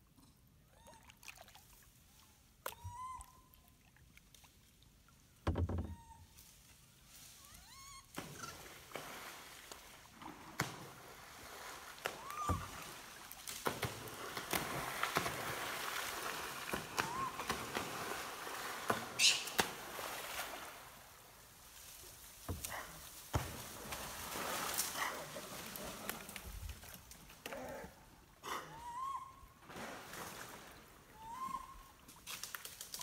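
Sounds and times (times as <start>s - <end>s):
high-pitched monkey screech: 2.8s - 3.4s, 7.5s - 8.0s, 19.2s - 19.6s, 31.2s - 31.8s
monkey calls: 2.8s - 3.4s, 17.0s - 17.5s, 19.2s - 19.6s, 28.7s - 29.4s, 31.2s - 31.9s
monkeys splashing into river: 7.7s - 21.2s, 23.2s - 26.9s, 29.6s - 33.0s.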